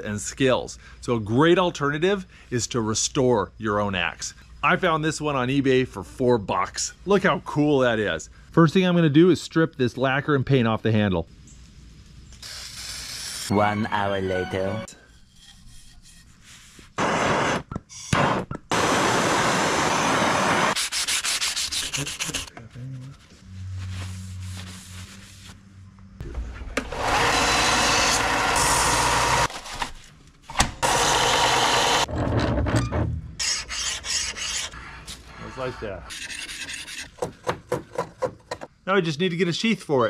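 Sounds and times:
abrasive rubbing on steel: 0:14.3 - 0:17.0.

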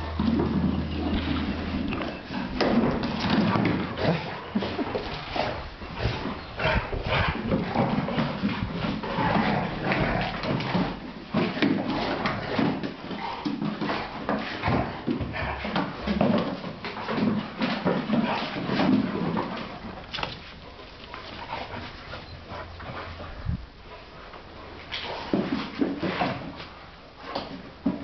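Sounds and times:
dogs growling and yelping: 0:00.8 - 0:11.0.

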